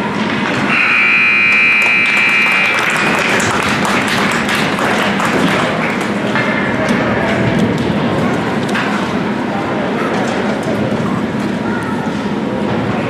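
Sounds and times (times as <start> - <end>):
scoreboard buzzer tone: 0.7 - 3.2.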